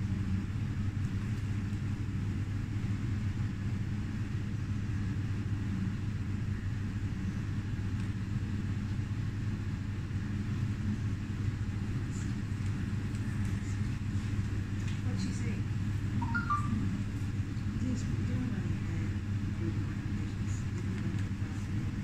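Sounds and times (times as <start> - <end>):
kitchen machinery hum: 0.0 - 22.0.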